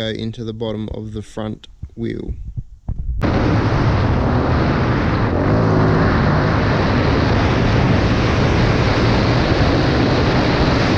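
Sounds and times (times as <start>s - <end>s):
wind buffeting microphone: 1.7s - 10.9s
motorcycle engine running: 3.2s - 10.9s.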